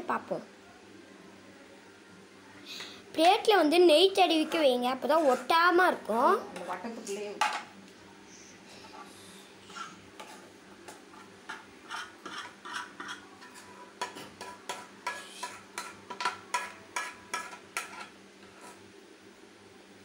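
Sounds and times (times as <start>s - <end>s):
metal spoon scraping steel plate: 4.4s - 5.5s, 8.8s - 10.5s, 11.1s - 18.8s.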